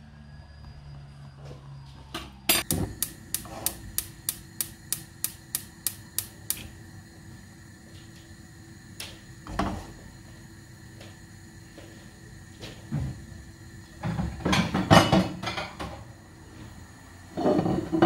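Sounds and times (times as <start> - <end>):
faint steady hum: 2.5 - 18.0
sharp clicks: 2.6 - 6.7.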